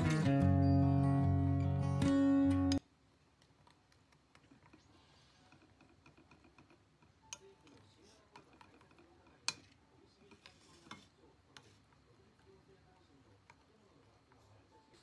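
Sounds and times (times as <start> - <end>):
spoon scraping a bowl: 8.0 - 11.9.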